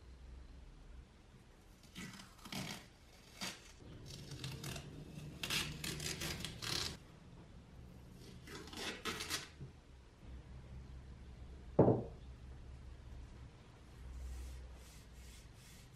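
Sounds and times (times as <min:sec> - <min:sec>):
masking tape peeled off metal: 0:01.9 - 0:07.0.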